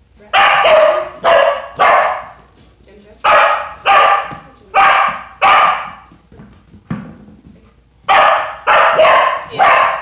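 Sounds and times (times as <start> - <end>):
dog barking with echo: 0.4 - 2.4, 3.2 - 6.0, 8.1 - 10.0.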